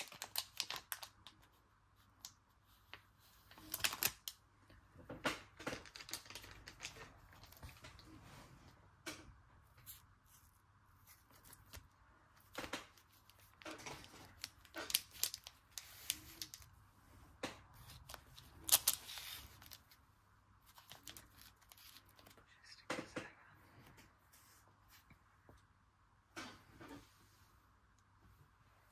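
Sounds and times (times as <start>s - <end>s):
foil wrappers crinkling: 0.0s - 1.5s, 3.5s - 4.4s, 5.6s - 8.0s, 12.6s - 16.7s, 17.8s - 20.0s.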